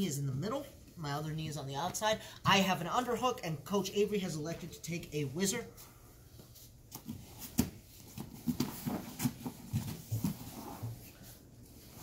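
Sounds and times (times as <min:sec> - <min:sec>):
bodies scuffing on mats: 0:06.4 - 0:12.0.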